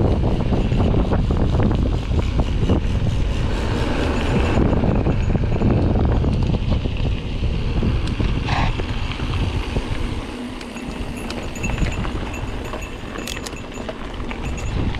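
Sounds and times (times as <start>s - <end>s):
bike rattling and clicking: 0.0s - 14.9s
wind rumble on microphone: 0.0s - 14.9s
bike tyres crunching on gravel: 6.3s - 14.9s.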